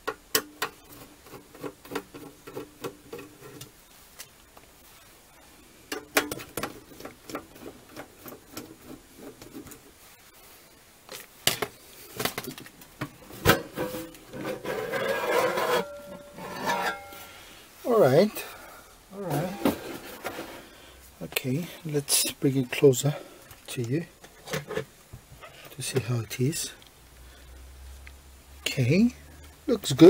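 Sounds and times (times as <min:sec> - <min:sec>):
metal cover scraping rattle: 0:13.2 - 0:17.4, 0:19.3 - 0:20.7.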